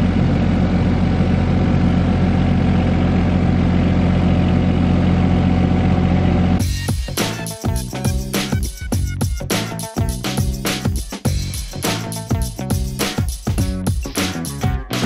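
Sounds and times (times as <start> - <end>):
diesel engine running steadily: 0.0 - 7.9.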